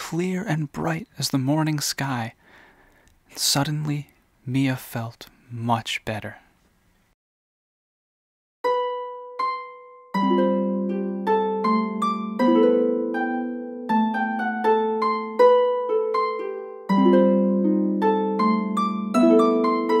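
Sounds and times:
harp playing: 8.6 - 20.0.

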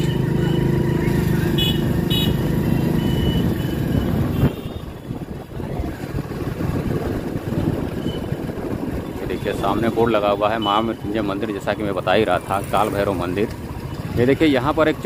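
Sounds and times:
motorcycle engine running: 0.0 - 15.0
short high beeps: 2.8 - 4.2.

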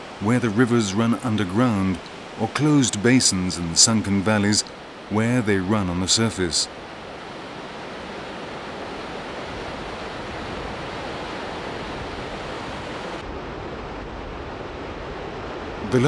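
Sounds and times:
waterfall rushing: 0.0 - 13.4.

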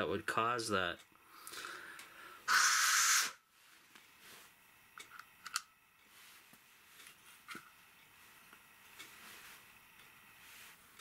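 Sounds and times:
hiss of air: 2.4 - 3.4.

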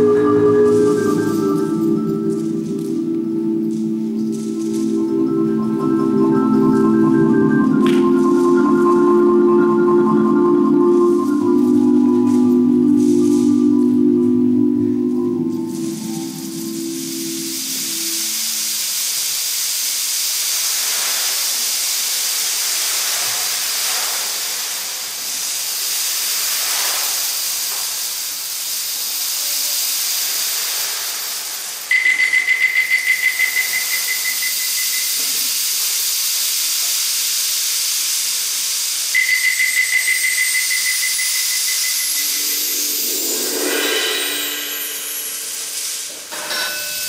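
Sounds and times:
rising whistle: 0.0 - 2.4, 31.9 - 35.2, 39.2 - 46.1
high warbling whistle tone: 0.0 - 2.8, 4.9 - 13.8, 31.9 - 35.2, 39.2 - 46.2
hissing percussion wash: 0.0 - 47.0
low tone: 41.7 - 46.1.

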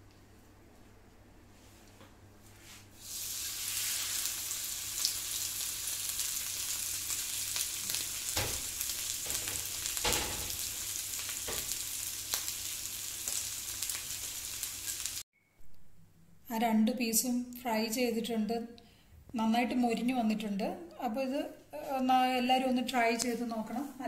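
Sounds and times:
fish sizzling in a pan: 3.0 - 15.2.

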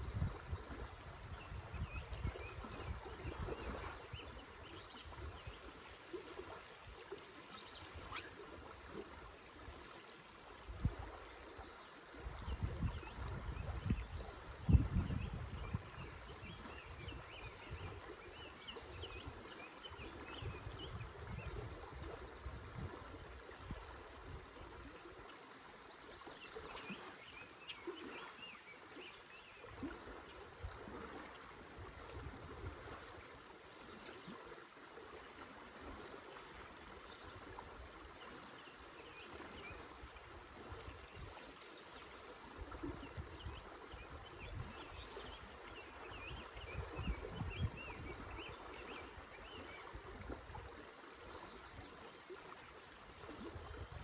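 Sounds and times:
river current over riffles: 0.0 - 54.0
faint bird chirps: 7.6 - 8.4.

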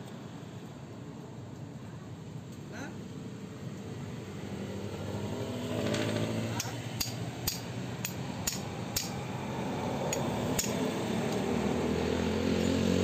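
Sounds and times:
hammer tapping on metal: 6.6 - 9.2, 10.1 - 10.8.

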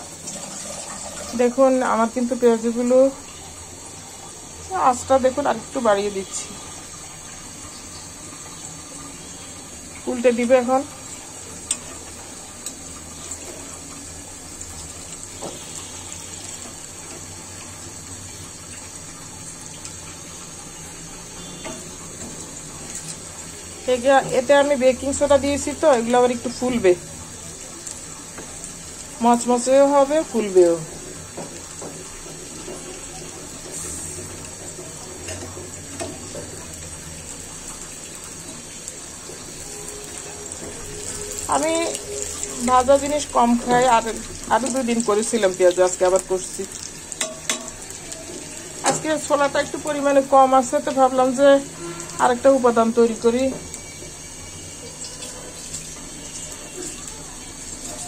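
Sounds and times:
fritters sizzling in hot oil: 0.0 - 58.0.

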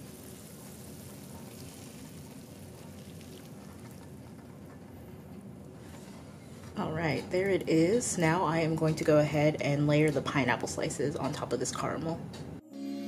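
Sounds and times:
caramel pouring into metal pan: 0.0 - 4.2.

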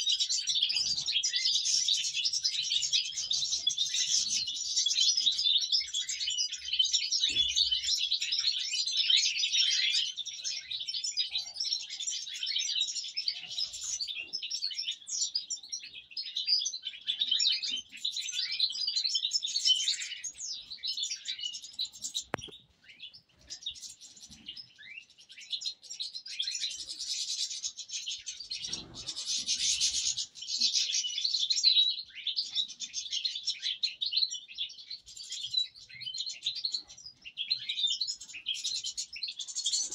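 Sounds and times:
goldfinches chirping and twittering: 0.0 - 39.9.

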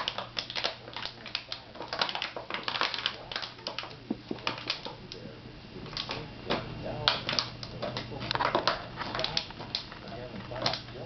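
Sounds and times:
puppy chewing plastic bottle: 0.0 - 11.0.

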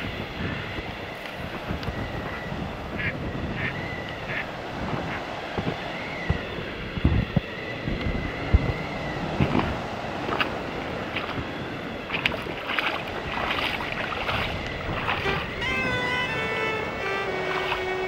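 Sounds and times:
wind buffeting microphone: 0.0 - 18.0
faint high tone: 15.2 - 18.0.

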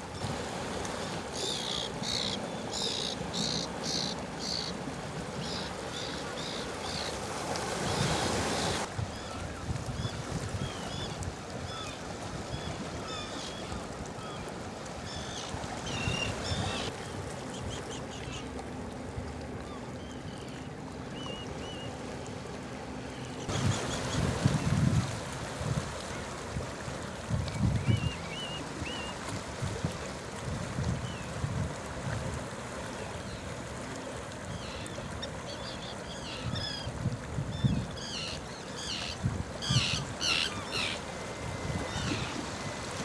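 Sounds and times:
terns calling: 38.0 - 42.4.

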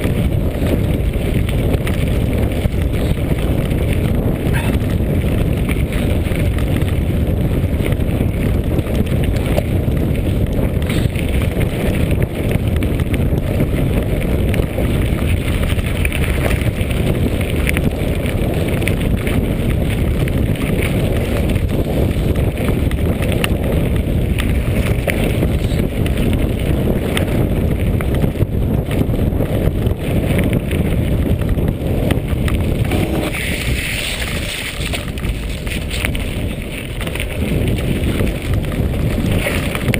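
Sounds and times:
bike rattling over stones: 0.0 - 39.9
wind rumble on microphone: 0.0 - 39.9
tyres crunching on gravel: 32.4 - 39.9.

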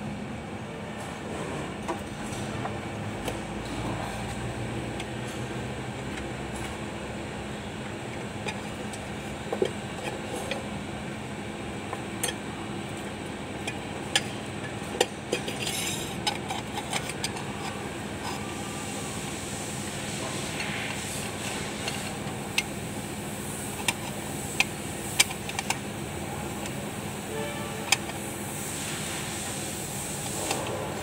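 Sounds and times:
steady background hum: 0.0 - 31.0
metal parts clinking and knocking: 13.5 - 18.5.

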